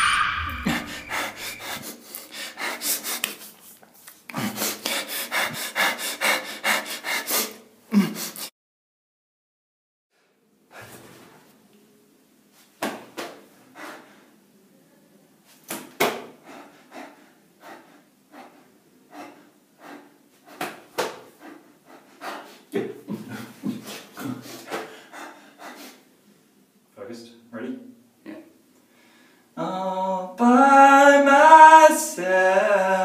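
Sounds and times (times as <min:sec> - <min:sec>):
man panting hard: 0:00.8 - 0:03.3, 0:04.3 - 0:08.5, 0:13.7 - 0:14.3, 0:16.2 - 0:26.1.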